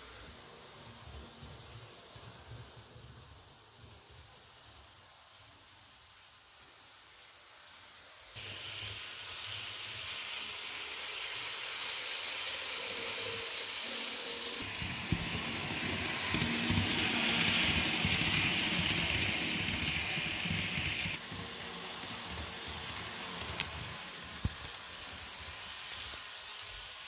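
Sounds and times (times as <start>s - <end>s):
model train rolling on track: 0.0s - 27.0s.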